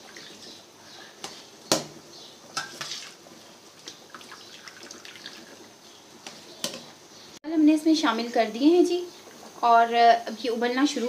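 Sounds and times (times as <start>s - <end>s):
rice splashing into boiling liquid: 1.2s - 6.8s.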